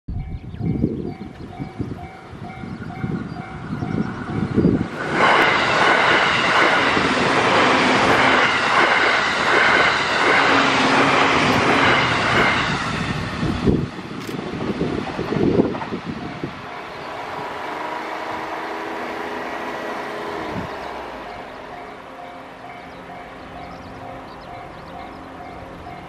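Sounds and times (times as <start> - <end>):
level crossing warning bell: 0.1 - 4.6, 16.2 - 17.2, 20.5 - 26.0
train passing: 0.1 - 26.0.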